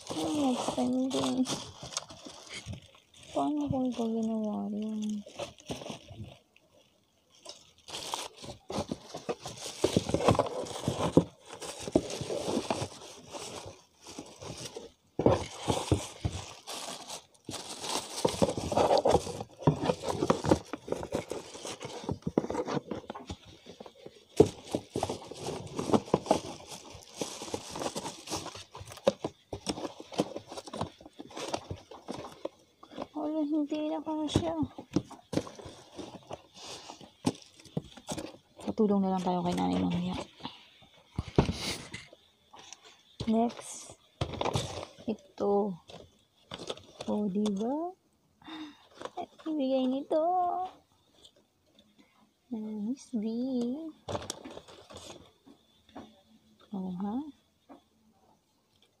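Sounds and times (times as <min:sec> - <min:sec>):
plastic wrapping crinkling: 0:00.0 - 0:40.5
cardboard box scraping: 0:08.4 - 0:32.4.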